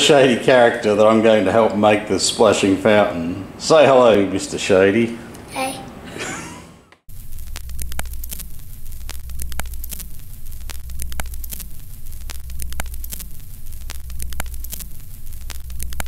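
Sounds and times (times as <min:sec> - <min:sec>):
steady low hum: 0:00.0 - 0:16.0
static crackle and pops: 0:07.0 - 0:16.0.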